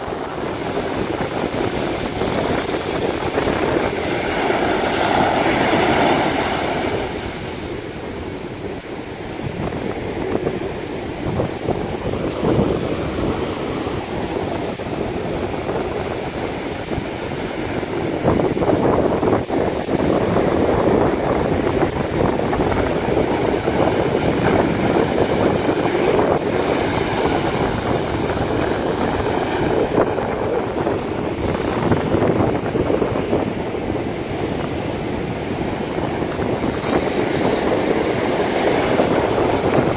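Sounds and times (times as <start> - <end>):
sea surf breaking on beach: 0.0 - 39.9.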